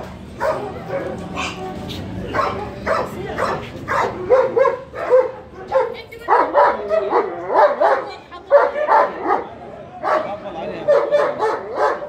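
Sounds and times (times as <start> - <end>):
dogs barking: 0.3 - 12.0.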